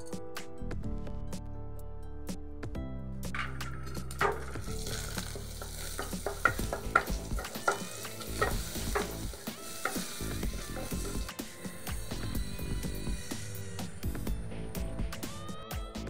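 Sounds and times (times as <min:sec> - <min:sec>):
spatula tapping and scraping pan: 0:03.4 - 0:11.3
spices sizzling in hot oil: 0:03.4 - 0:13.6.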